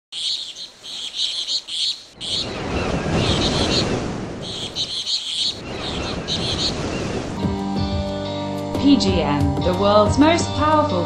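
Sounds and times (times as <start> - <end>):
high bird chirping: 0.1 - 7.4
steady rushing wash of noise: 2.1 - 7.8.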